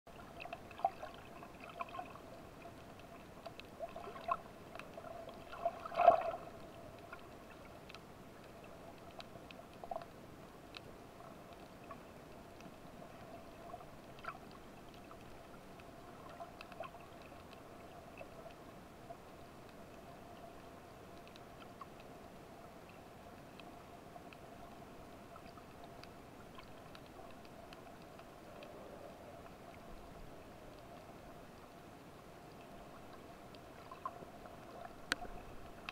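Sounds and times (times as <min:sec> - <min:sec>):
faint underwater hum: 0:00.1 - 0:35.9
small clicks: 0:06.1 - 0:22.2, 0:22.8 - 0:29.9, 0:32.5 - 0:35.9.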